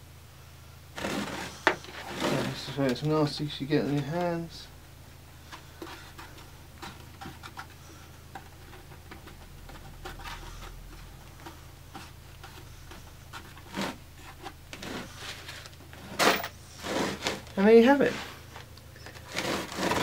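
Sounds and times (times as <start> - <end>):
steady low hum: 0.0 - 20.0
rustling and light taps: 5.4 - 16.0.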